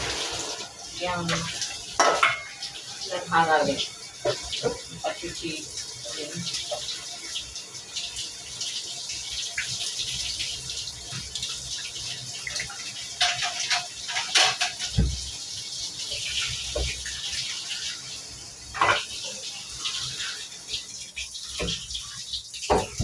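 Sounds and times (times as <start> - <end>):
tap water running into sink: 0.0 - 23.0
knocks and splashes: 13.2 - 15.3, 21.5 - 22.0, 22.6 - 23.0.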